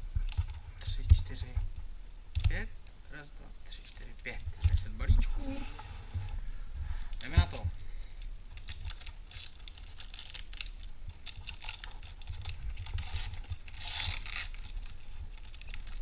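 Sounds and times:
foil wrapper crinkling: 8.2 - 16.0
wrapper ripping: 8.5 - 16.0.

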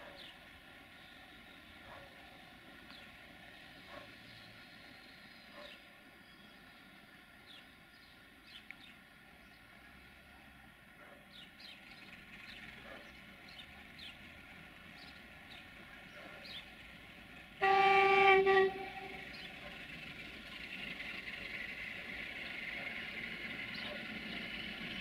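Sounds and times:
train rumbling: 0.0 - 8.4, 9.2 - 25.0
locomotive horn blast: 17.6 - 19.4.

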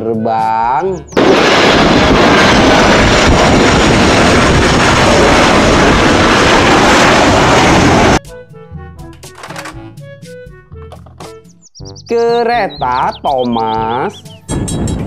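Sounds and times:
jet airliner engines roaring: 1.1 - 8.2.

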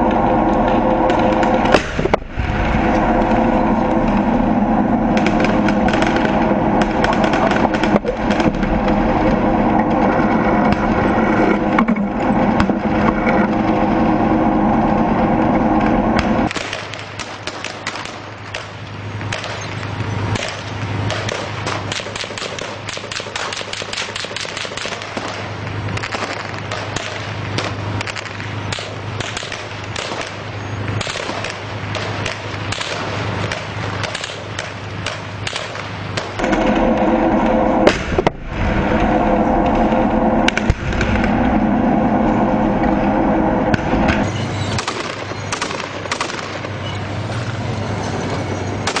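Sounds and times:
low hum: 0.0 - 49.0
tank engine running: 0.0 - 49.0
rapid gunfire: 5.1 - 11.2, 16.2 - 38.4, 44.8 - 46.8.

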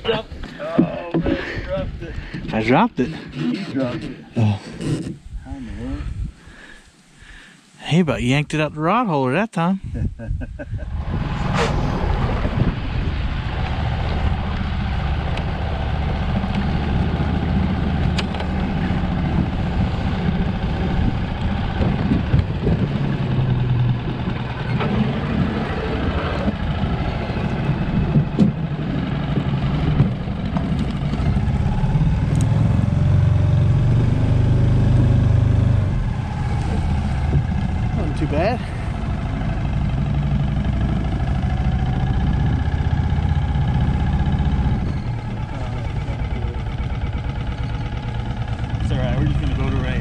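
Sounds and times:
outboard motor running: 10.9 - 50.0.

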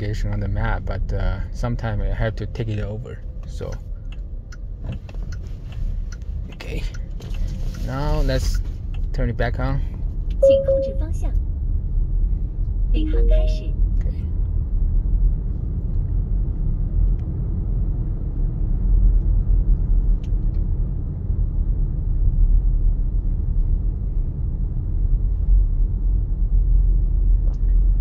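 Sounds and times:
road and tyre rumble: 0.0 - 28.0.

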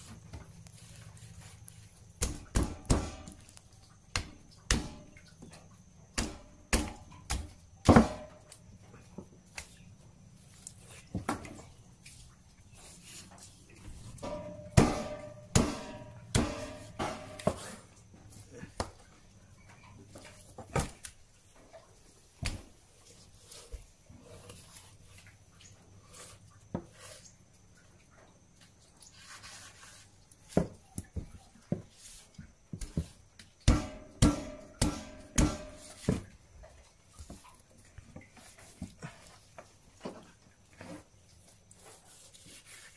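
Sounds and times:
knife chopping through carcass: 33.7 - 36.2.

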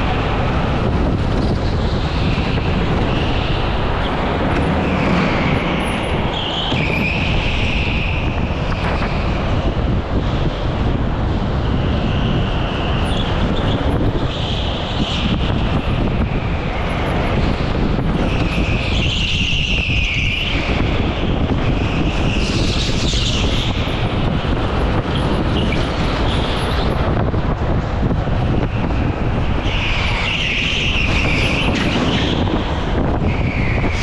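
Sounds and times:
wind rush: 0.0 - 34.0
tyre squeals: 2.3 - 9.4, 29.6 - 32.5.

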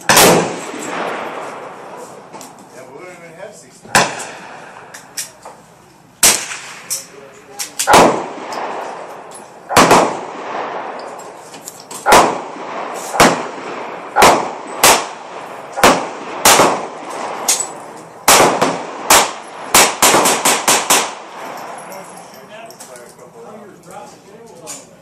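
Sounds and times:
gunshots with ringing echo: 0.0 - 2.0, 6.2 - 7.1, 7.8 - 11.3, 12.0 - 22.0.

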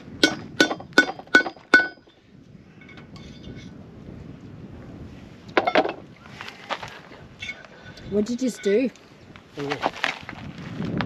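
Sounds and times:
hammer striking metal punch: 0.2 - 2.0.

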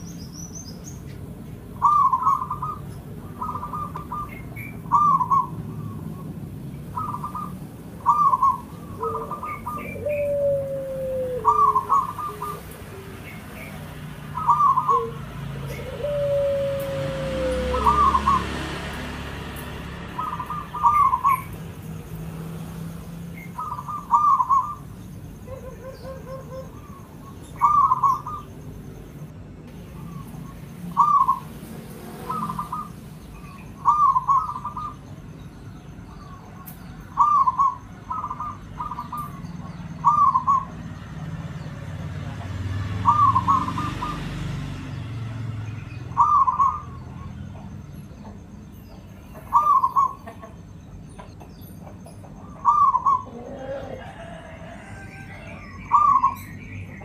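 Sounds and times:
dove cooing: 1.7 - 18.8, 20.1 - 21.7, 23.4 - 28.6, 29.9 - 35.2, 36.2 - 40.8, 42.3 - 44.3, 46.2 - 48.3, 49.3 - 56.5.

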